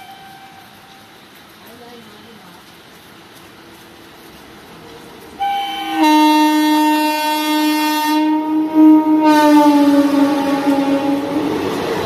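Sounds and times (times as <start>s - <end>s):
locomotive horn: 0.0s - 1.0s, 5.4s - 12.0s
train passing at speed: 3.6s - 12.0s.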